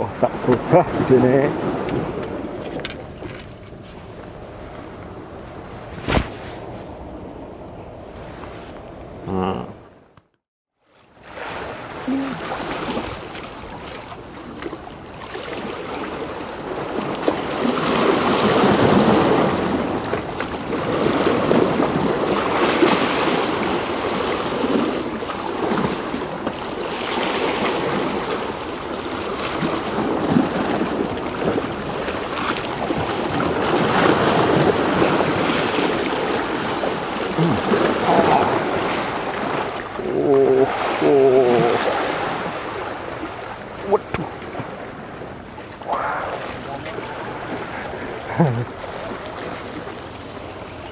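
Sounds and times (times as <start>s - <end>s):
waves washing against rocks: 11.2s - 50.9s.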